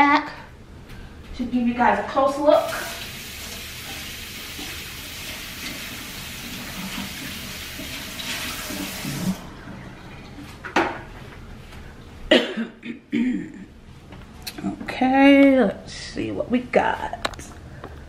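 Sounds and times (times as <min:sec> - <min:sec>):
faucet water running: 0:02.5 - 0:10.3.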